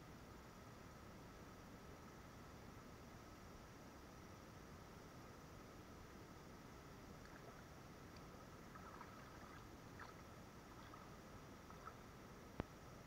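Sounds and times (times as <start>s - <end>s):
faint steady hiss: 0.0s - 13.0s
faint ticks: 7.2s - 10.2s.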